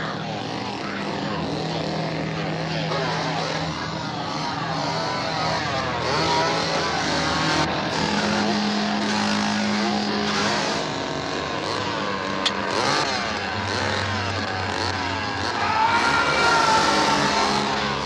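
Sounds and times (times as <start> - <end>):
chainsaw revving: 4.6 - 18.0.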